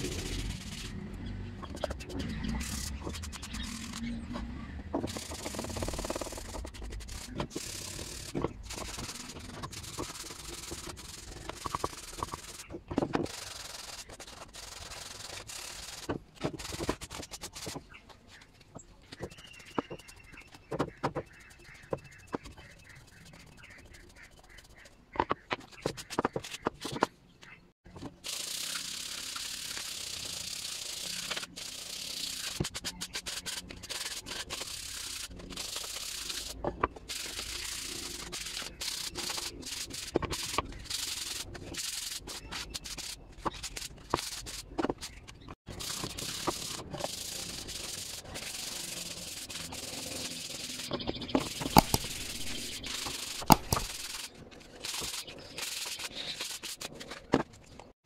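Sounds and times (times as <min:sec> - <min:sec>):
sanding block rasping on wood: 0:05.1 - 0:12.6, 0:45.8 - 0:50.9, 0:51.5 - 0:56.9.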